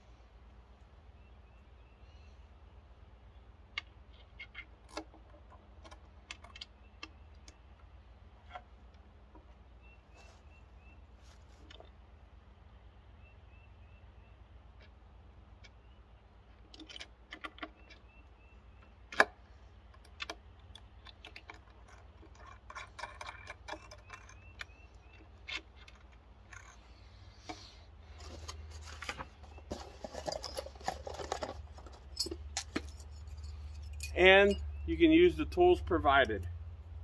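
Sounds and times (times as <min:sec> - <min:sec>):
rustling and handling: 0:08.4 - 0:12.0, 0:25.4 - 0:34.7
small metal parts clinking: 0:29.7 - 0:34.7.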